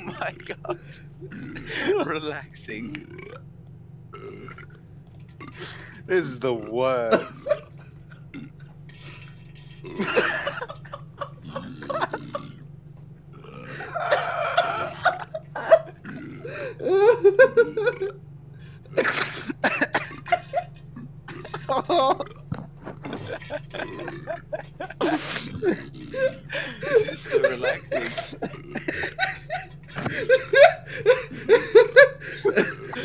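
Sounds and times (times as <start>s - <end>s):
steady low hum: 0.0s - 33.0s
diarrhea and fart sound effects: 19.0s - 20.4s, 21.3s - 26.2s.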